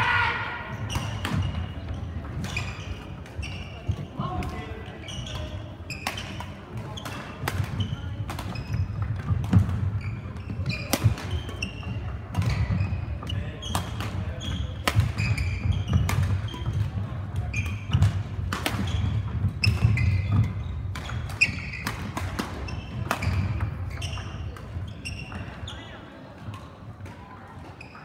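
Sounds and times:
shoes squeaking on court floor: 0.8s - 26.8s, 27.4s - 28.0s
racket striking shuttlecock: 17.6s - 23.7s.

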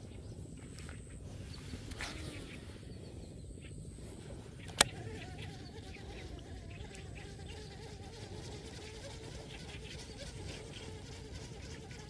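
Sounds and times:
low outdoor background: 0.0s - 12.0s
fly buzzing: 1.7s - 2.8s, 4.0s - 12.0s
sharp click: 4.6s - 5.0s.

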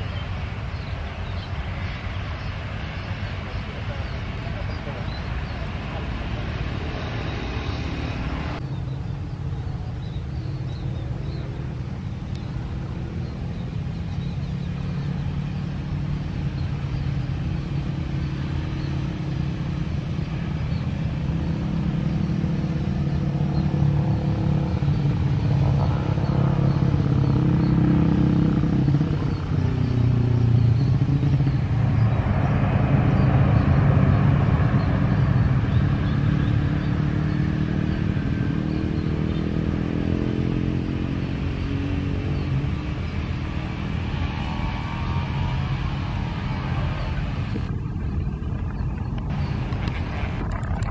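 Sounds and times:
jet airliner landing: 0.0s - 9.9s, 30.8s - 36.9s, 42.4s - 50.9s
motorcycle engine passing: 10.5s - 48.1s.

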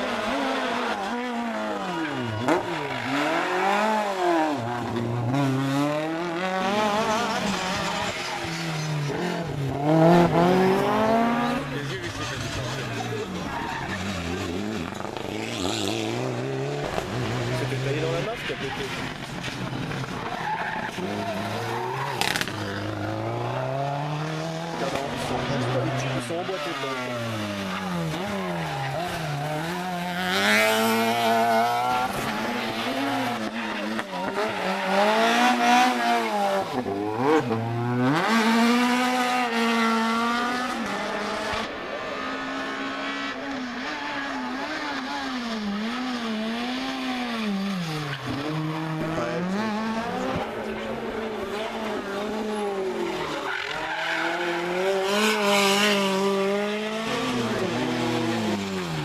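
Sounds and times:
rally car engines revving: 0.0s - 59.0s.

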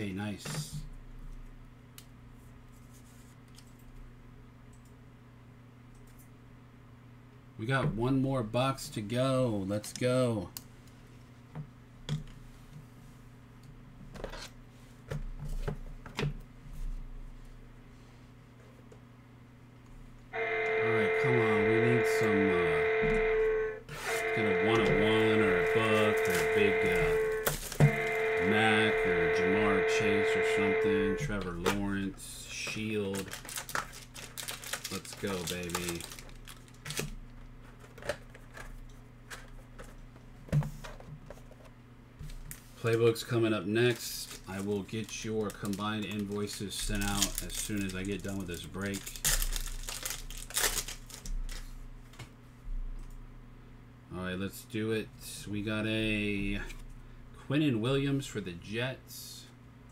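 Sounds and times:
low electrical hum: 0.0s - 59.9s
steady low hum: 15.9s - 33.4s
plastic card sleeves rustling: 33.0s - 37.0s, 43.9s - 51.7s.

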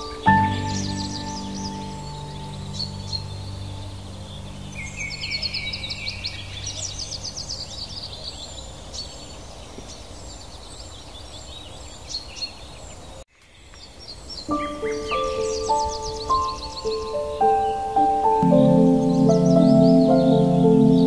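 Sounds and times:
low sustained music tone: 0.0s - 8.0s, 14.5s - 21.0s
songbirds singing: 0.0s - 21.0s.

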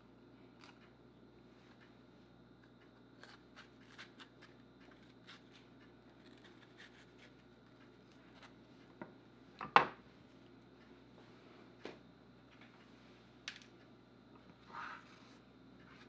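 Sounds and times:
knife cutting pepper: 3.2s - 5.6s.

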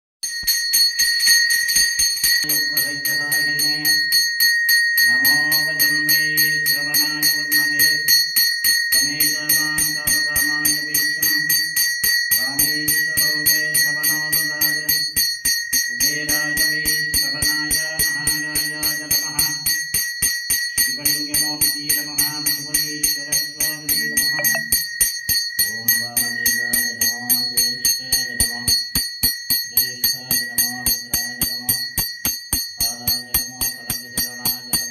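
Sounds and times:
brass hand bell ringing rapidly: 23.3s - 26.6s.

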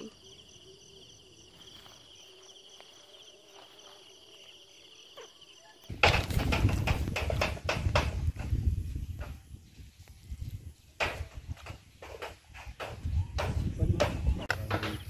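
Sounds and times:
insects trilling: 0.0s - 15.0s
loud rapid knocks: 5.9s - 8.6s.

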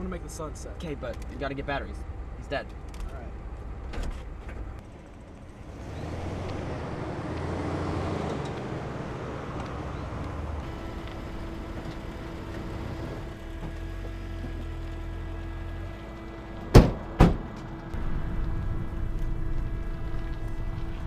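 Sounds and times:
traffic hum: 0.0s - 21.0s
truck driving past: 4.8s - 21.0s.

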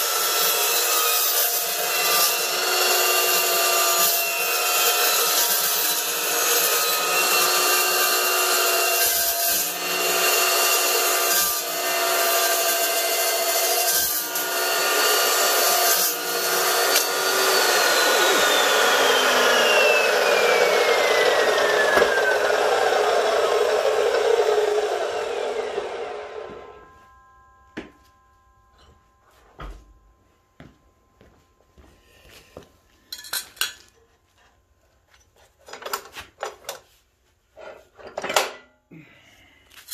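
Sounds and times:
chop saw cutting metal: 0.0s - 26.9s
saw motor whine spinning down: 16.1s - 27.3s.

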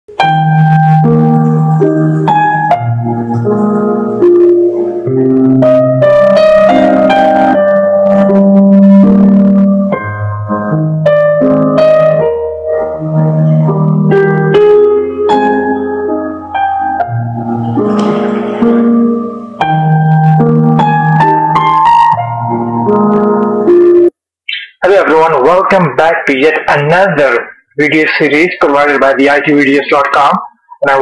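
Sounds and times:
instrumental intro music: 0.1s - 24.2s.

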